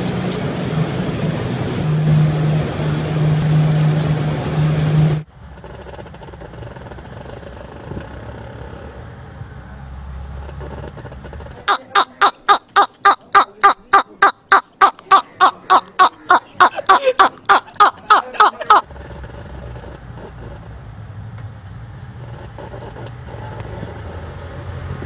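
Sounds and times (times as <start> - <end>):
low vehicle rumble: 0.0 - 25.0
man laughing loudly: 11.7 - 18.8.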